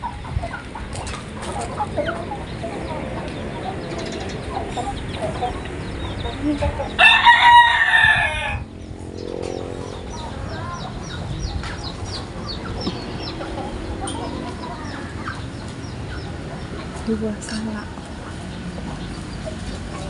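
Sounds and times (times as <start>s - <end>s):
chickens calling: 0.0s - 20.0s
rooster crowing: 7.0s - 8.7s.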